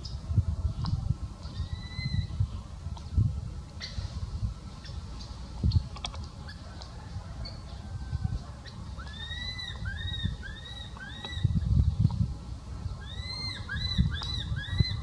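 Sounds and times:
baby monkey high-pitched calls: 1.5 - 2.3, 9.0 - 11.6, 13.0 - 15.0.

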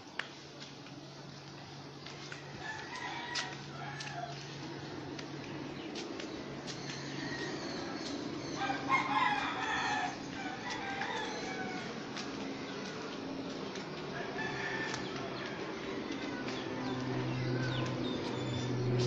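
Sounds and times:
steady low hum: 0.0 - 19.0
rooster crowing: 2.3 - 4.5, 7.0 - 12.0, 14.1 - 17.8.

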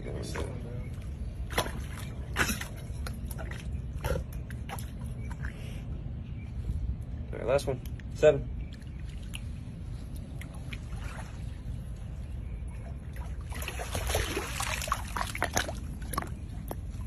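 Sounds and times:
water splashing: 0.2 - 4.0, 12.9 - 17.0.

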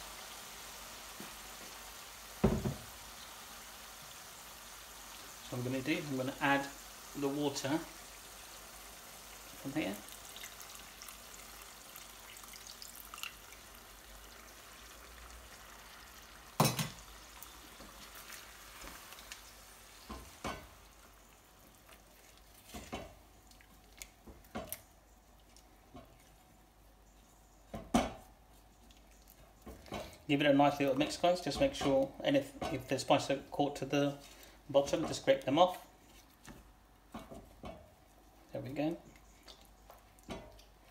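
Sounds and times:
curry sizzling in pan: 0.0 - 24.7.

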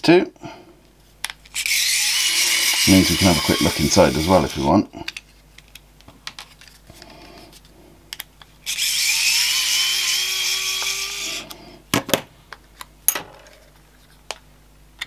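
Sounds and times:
electric screwdriver whirring: 1.6 - 4.7, 8.6 - 11.6.

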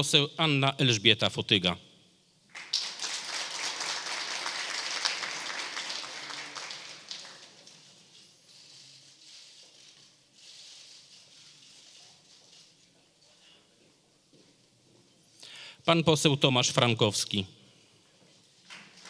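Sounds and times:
audience applauding: 2.5 - 7.7.

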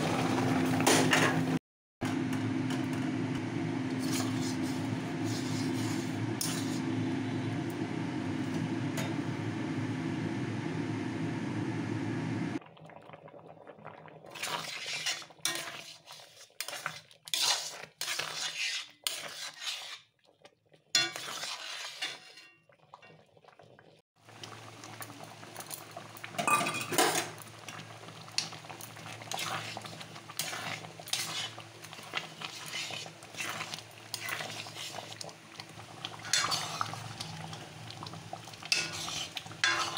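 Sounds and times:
loud low hum: 2.0 - 12.6
spoon scraping a pan: 3.9 - 7.0, 14.4 - 20.2, 21.0 - 22.6, 29.2 - 35.3, 36.2 - 37.6, 38.6 - 39.9
oats bubbling: 12.6 - 39.9.

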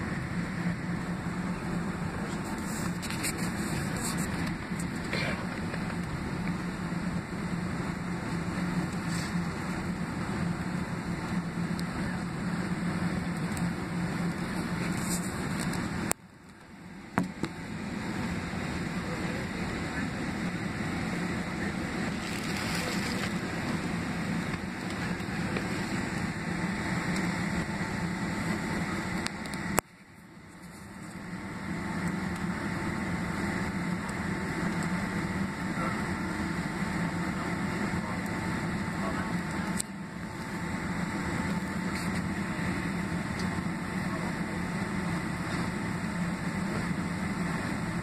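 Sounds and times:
aircraft cabin hum: 0.0 - 48.0.

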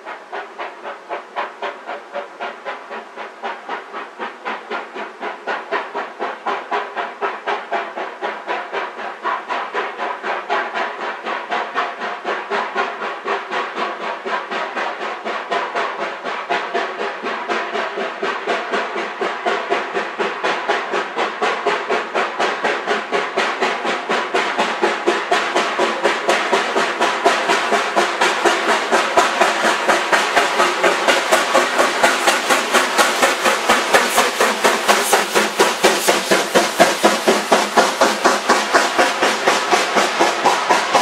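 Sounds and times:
steam locomotive chuffing: 0.0 - 41.0.

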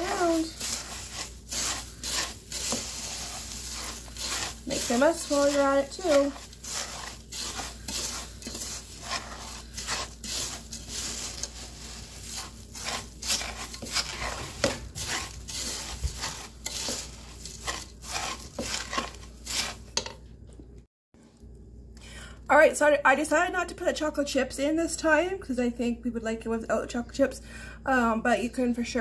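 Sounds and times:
spoon scraping cereal in metal pot: 0.0 - 20.2.

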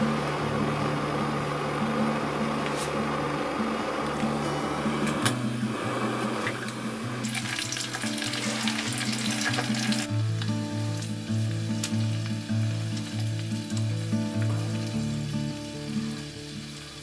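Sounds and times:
fish frying sizzle: 5.5 - 17.0.

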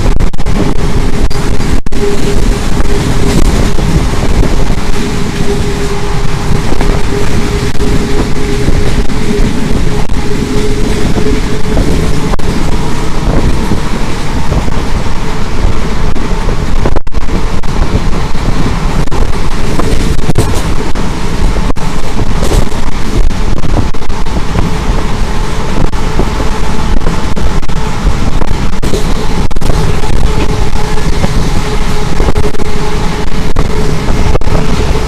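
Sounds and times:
train wheels rumbling on rails: 0.0 - 35.0
wind buffeting microphone: 0.0 - 35.0.

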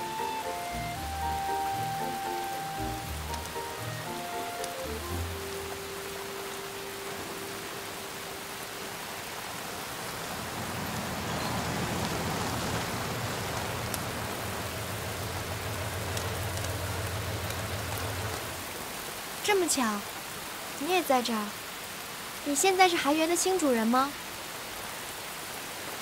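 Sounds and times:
rain falling on pavement: 0.0 - 26.0
car engine idling: 10.0 - 18.8.

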